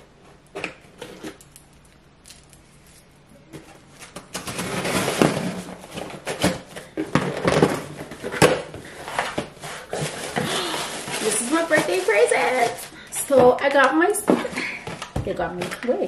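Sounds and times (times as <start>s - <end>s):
cardboard flaps rustling: 3.5s - 12.8s
packing tape tearing: 4.0s - 6.6s, 7.2s - 12.9s.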